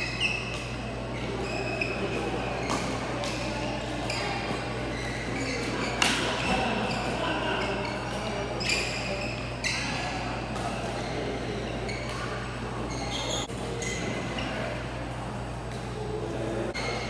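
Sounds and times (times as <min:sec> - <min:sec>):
rackets hitting shuttlecock: 0:02.2 - 0:04.6, 0:05.6 - 0:06.6.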